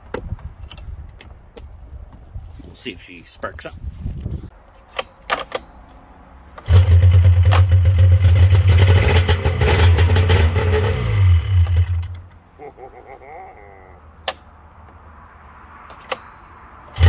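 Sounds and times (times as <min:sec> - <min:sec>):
two-stroke engine running: 0:06.6 - 0:12.2.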